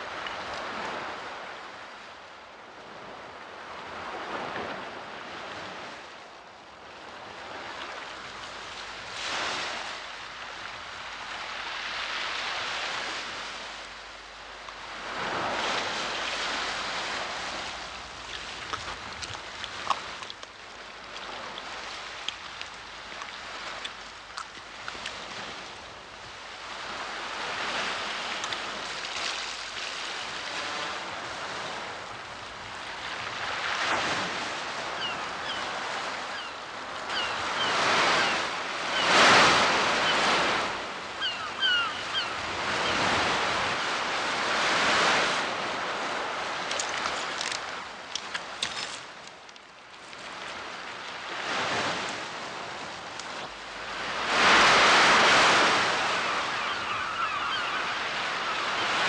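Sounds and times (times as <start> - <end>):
wind: 0.0 - 59.0
gulls calling: 34.8 - 43.2, 53.1 - 59.0.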